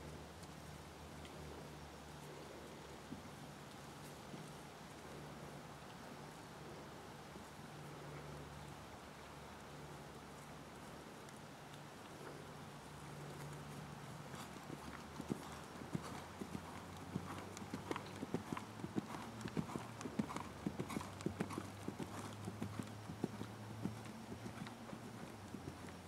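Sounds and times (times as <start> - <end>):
horse hoofbeats on sand: 14.3 - 26.0.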